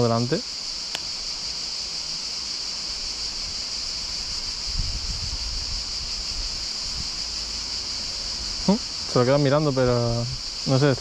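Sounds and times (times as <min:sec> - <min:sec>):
high-pitched insect chorus: 0:00.0 - 0:11.0
wind buffeting microphone: 0:04.2 - 0:07.2.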